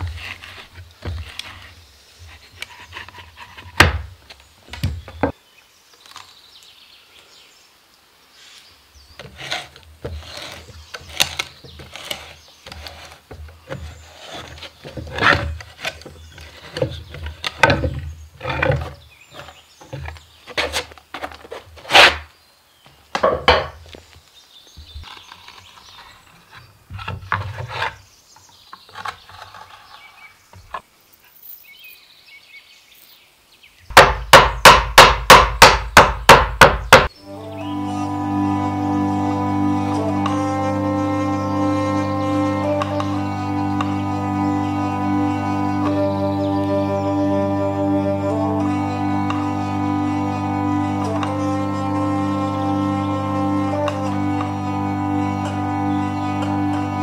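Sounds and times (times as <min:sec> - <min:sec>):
wooden knocks and scraping: 0:00.0 - 0:05.4, 0:09.2 - 0:24.1, 0:24.7 - 0:28.1, 0:28.7 - 0:30.8
hammer striking nail: 0:33.9 - 0:37.1.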